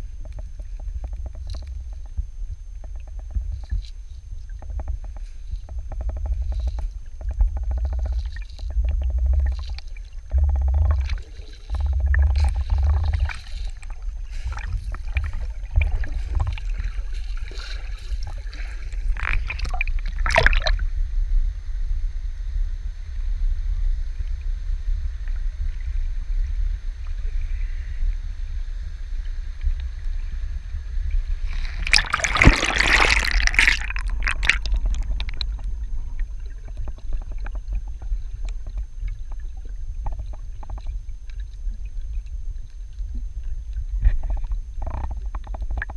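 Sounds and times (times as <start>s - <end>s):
rush of water and bubbles: 0.0s - 21.0s, 29.1s - 45.9s
muffled underwater rumble: 0.0s - 45.9s
water splash: 11.1s - 20.8s, 31.4s - 37.2s.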